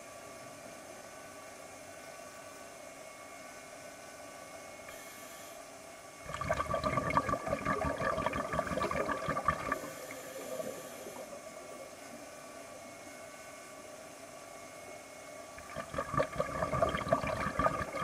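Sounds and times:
faint hum: 0.0s - 18.0s
air bubbling underwater: 6.3s - 11.5s, 15.6s - 18.0s.

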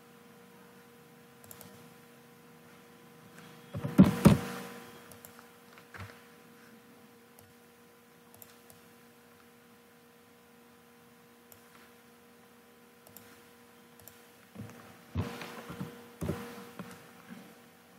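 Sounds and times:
computer electrical hum: 0.0s - 17.9s
computer mouse clicks: 1.4s - 1.9s, 5.1s - 6.1s, 8.3s - 8.9s, 11.5s - 11.9s, 13.0s - 13.4s, 14.0s - 14.2s
keyboard knocks and clicks: 3.8s - 4.5s.

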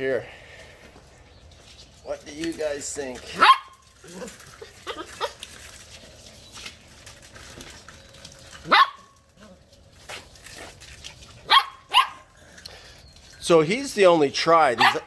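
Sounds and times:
puppy barking: 3.4s - 3.8s, 8.6s - 9.1s, 11.4s - 12.3s, 14.8s - 15.0s.

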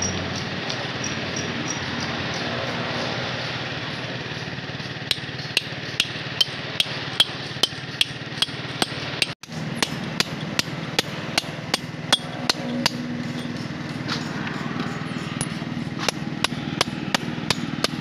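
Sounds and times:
hammer tapping steel chisel: 5.1s - 18.0s.

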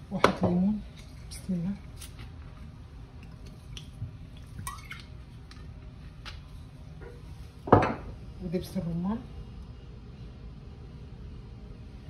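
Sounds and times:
low steady hum: 0.0s - 12.0s
juice dripping: 0.9s - 6.6s.

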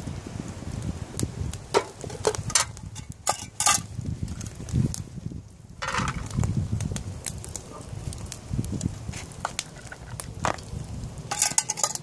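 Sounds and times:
campfire crackling: 0.0s - 12.0s
metal pot and lid clinking: 1.8s - 3.9s, 11.3s - 12.0s.

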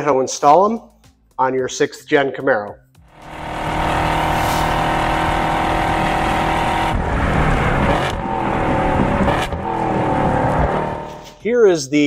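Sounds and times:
car engine at high revs: 3.1s - 11.4s.

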